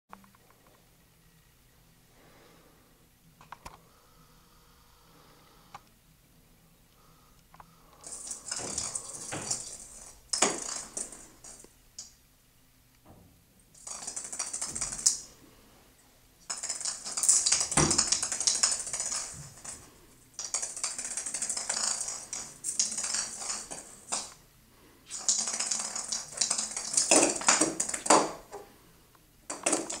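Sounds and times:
ornament rattling on tile floor: 0:07.9 - 0:11.7, 0:13.7 - 0:15.3, 0:16.4 - 0:24.4, 0:25.1 - 0:28.6, 0:29.5 - 0:30.0.

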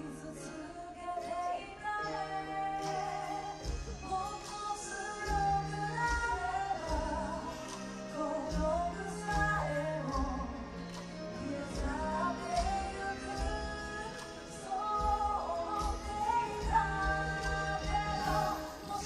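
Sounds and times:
woman singing pop song: 0:00.0 - 0:19.0
backing music with bass line: 0:05.2 - 0:19.0.

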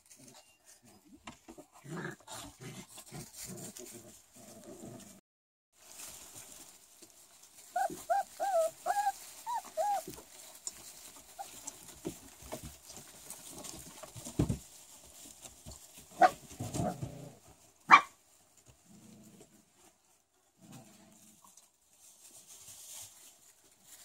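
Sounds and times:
puppies whimpering: 0:07.8 - 0:10.2.

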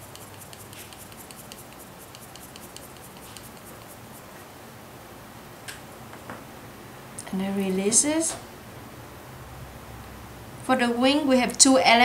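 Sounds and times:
paper ticks and crackles: 0:00.0 - 0:04.2.

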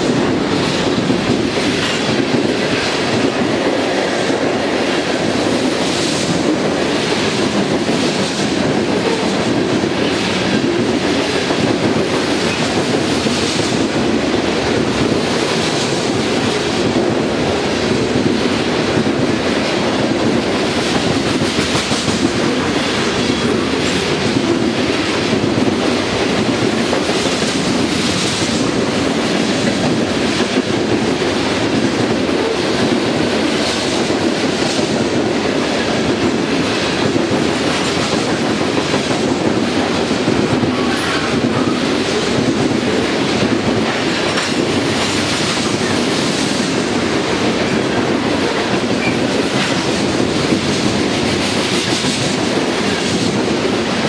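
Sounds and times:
steel wheels rumbling on rail: 0:00.0 - 0:54.0
wheels clacking on rail joints: 0:00.0 - 0:54.0.

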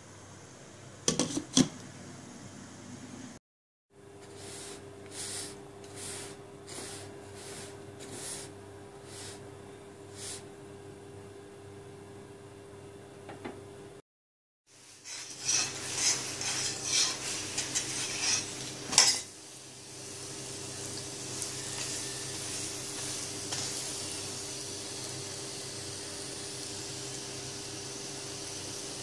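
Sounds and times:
flatbread sizzling on griddle: 0:14.7 - 0:29.0
metal spoon scraping griddle: 0:14.9 - 0:19.3.

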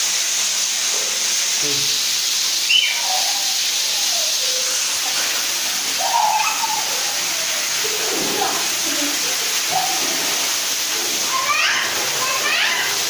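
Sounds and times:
steam hissing: 0:00.0 - 0:13.0
faint voices: 0:02.9 - 0:13.0.

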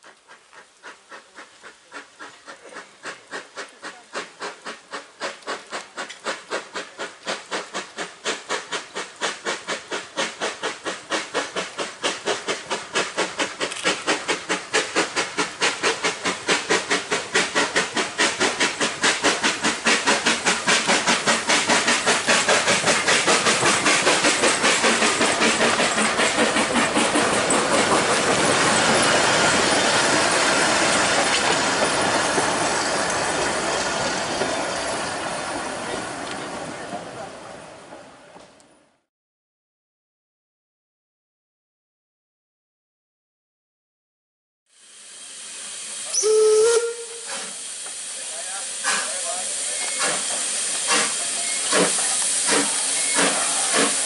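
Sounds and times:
steam hissing: 0:00.0 - 0:37.7, 0:44.7 - 0:54.0
steam locomotive chuffing: 0:00.0 - 0:38.2, 0:44.9 - 0:54.0
carriages rumbling: 0:21.3 - 0:38.3.

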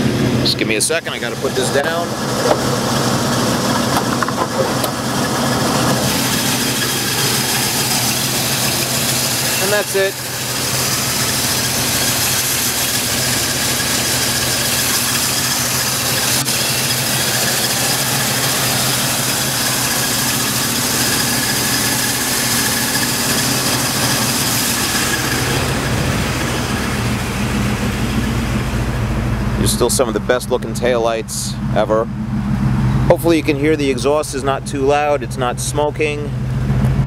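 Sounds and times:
car engine idling: 0:00.0 - 0:37.0
hiss from engine bay: 0:05.0 - 0:26.7.

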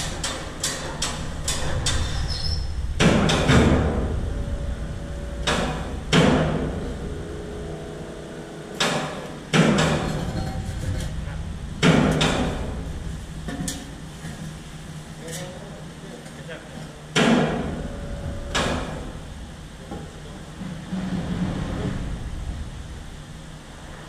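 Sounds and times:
heavy metal clanks and bangs: 0:00.0 - 0:08.0, 0:08.7 - 0:14.7
low workshop rumble: 0:00.0 - 0:24.0.

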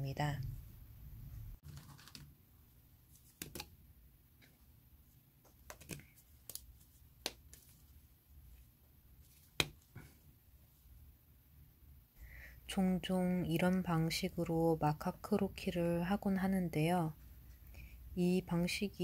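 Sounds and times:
plastic marker clicks and taps: 0:03.4 - 0:03.7.

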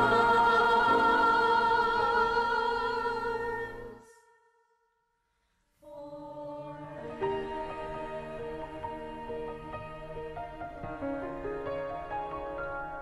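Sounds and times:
choir singing a chord: 0:00.0 - 0:04.4, 0:05.8 - 0:11.6
soft instrumental music: 0:05.9 - 0:13.0.

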